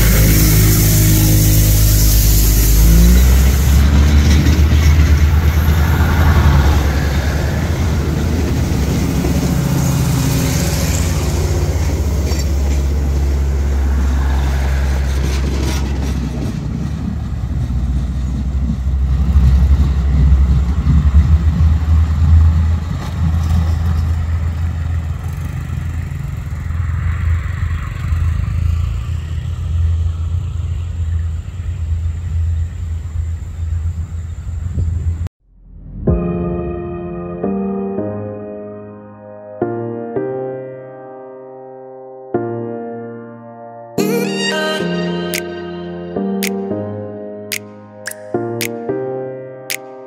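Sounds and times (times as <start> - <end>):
high-pitched train running noise: 0.0 - 25.6
diesel train engine rumble: 0.0 - 35.3.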